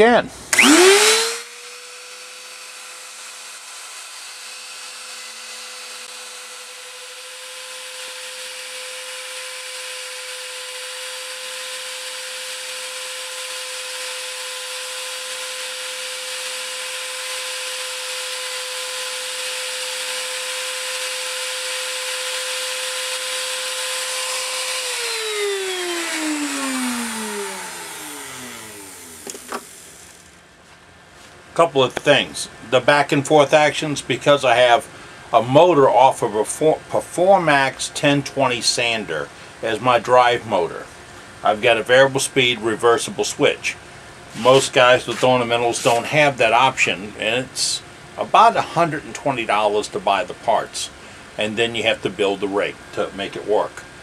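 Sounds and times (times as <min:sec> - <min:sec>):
router high whine cutting wood: 0:00.0 - 0:30.4, 0:41.5 - 0:46.8
router spinning down: 0:00.0 - 0:30.4.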